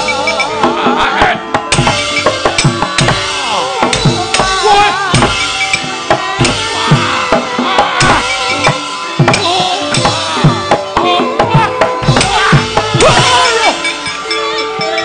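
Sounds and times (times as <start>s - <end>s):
gamelan ensemble playing: 0.0s - 15.0s
sharp wooden knocks: 0.4s - 13.4s
high melodic line: 8.1s - 15.0s.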